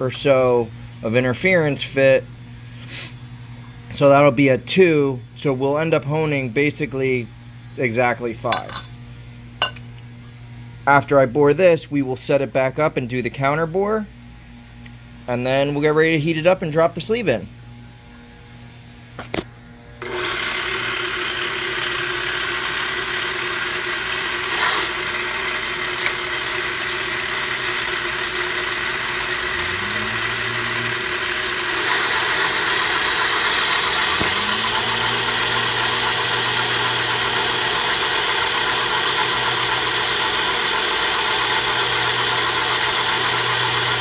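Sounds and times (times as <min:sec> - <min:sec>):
boring bar motor running: 0:20.0 - 0:44.0.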